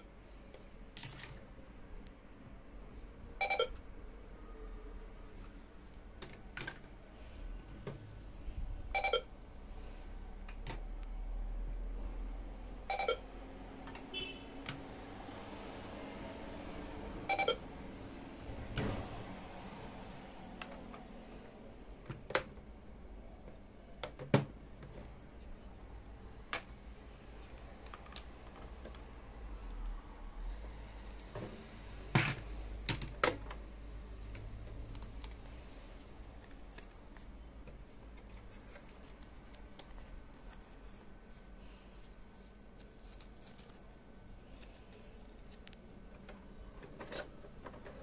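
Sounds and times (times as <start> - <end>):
toy scanner beeping: 3.4 - 3.8, 8.9 - 9.3, 12.9 - 13.2, 17.3 - 17.6.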